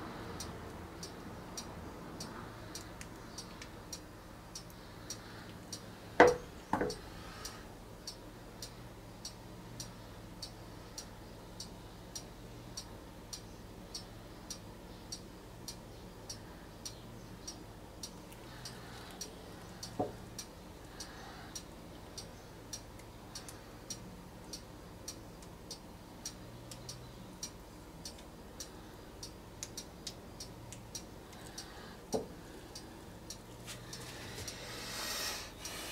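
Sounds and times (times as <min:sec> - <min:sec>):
faint steady ticking: 0:00.0 - 0:35.9
low background hum: 0:00.0 - 0:35.9
knocks: 0:06.2 - 0:07.0.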